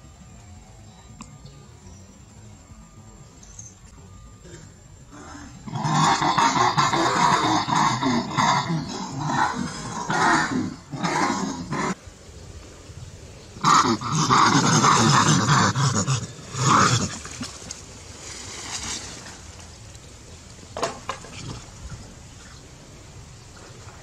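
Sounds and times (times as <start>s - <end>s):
macaque harsh calls: 5.1s - 12.0s, 13.6s - 17.2s.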